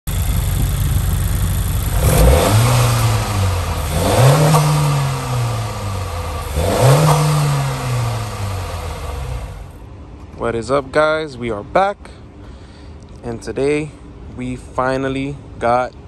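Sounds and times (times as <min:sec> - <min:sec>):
car engine idling and revving: 0:00.1 - 0:09.9.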